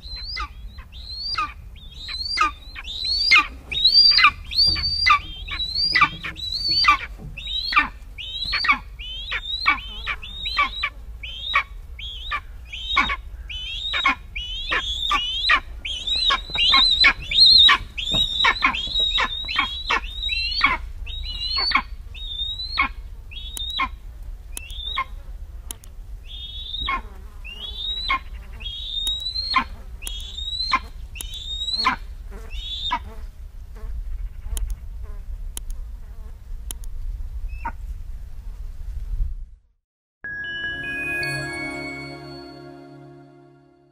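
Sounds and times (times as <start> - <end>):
eagle calling: 0.0 - 24.0, 26.3 - 33.1.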